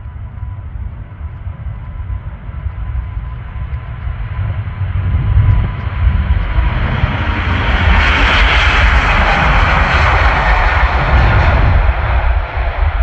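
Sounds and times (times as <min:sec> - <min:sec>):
faint steady whine: 0:00.0 - 0:06.7
jet engines low rumble: 0:00.0 - 0:13.0.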